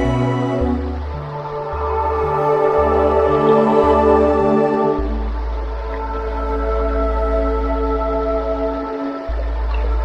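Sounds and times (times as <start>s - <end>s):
ambient music with sustained chords: 0.0s - 10.0s.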